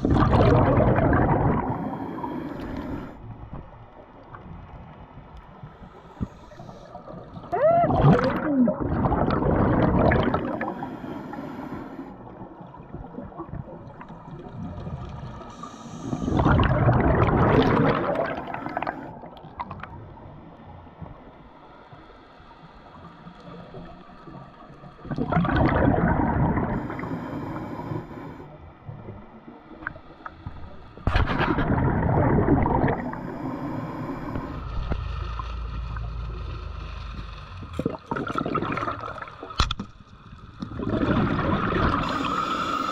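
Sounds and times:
underwater breath bubbling: 0.0s - 3.3s, 5.9s - 14.8s, 15.4s - 19.8s, 25.0s - 28.6s, 29.8s - 35.0s, 37.8s - 39.6s, 40.6s - 42.9s
underwater noise: 0.0s - 42.9s.

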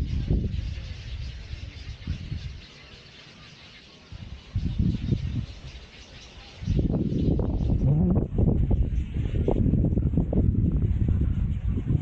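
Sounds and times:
wind buffeting microphone: 0.0s - 2.7s, 4.1s - 12.0s
high outdoor hiss: 0.0s - 9.6s.

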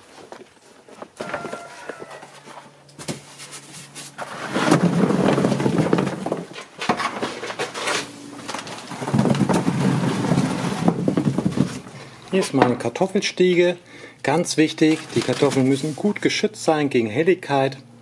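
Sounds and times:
potatoes clattering into wooden crate: 4.1s - 12.9s, 14.6s - 16.2s.

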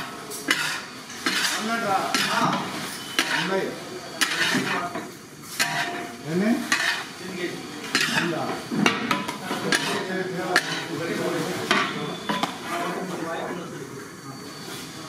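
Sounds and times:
steel ladle scraping a wok: 0.0s - 3.6s, 4.2s - 4.9s, 5.5s - 7.2s, 7.8s - 8.4s, 9.2s - 11.0s, 12.2s - 13.1s
rice frying: 0.0s - 13.2s.

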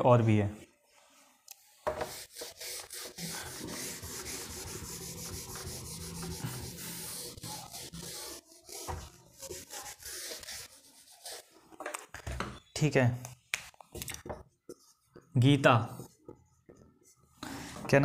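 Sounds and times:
close rubbing and scraping: 2.0s - 11.5s.

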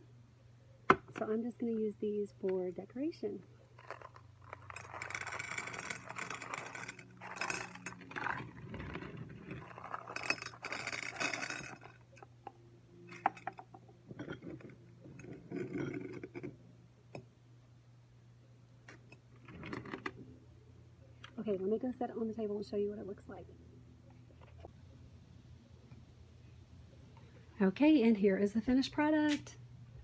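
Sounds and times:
rocks clinking against glass: 9.4s - 12.2s.

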